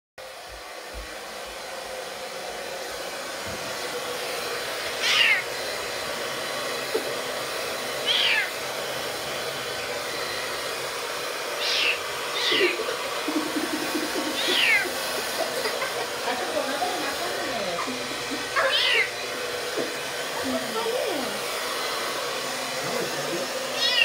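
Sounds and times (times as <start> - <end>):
hair dryer running: 0.2 - 24.0
kitten mewing: 5.0 - 5.5, 8.0 - 8.6, 11.6 - 13.3, 14.2 - 15.0, 18.6 - 19.2, 23.8 - 24.0.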